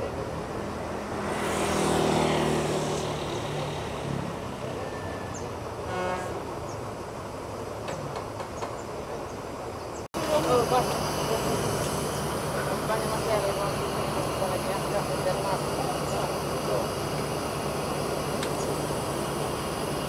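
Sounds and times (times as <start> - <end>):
diesel engine idling: 2.6 - 20.0
short horn toot: 4.8 - 6.5.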